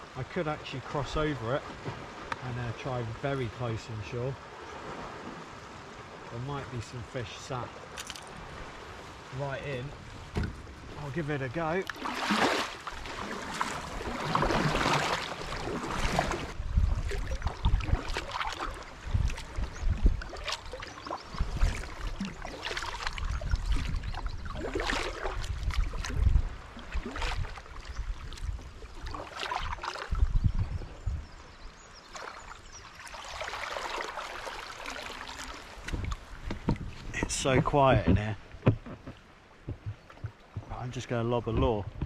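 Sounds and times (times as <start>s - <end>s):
paddle splashing in water: 0.6s - 2.5s, 4.4s - 30.6s, 32.0s - 42.0s
low thumps: 35.9s - 42.0s.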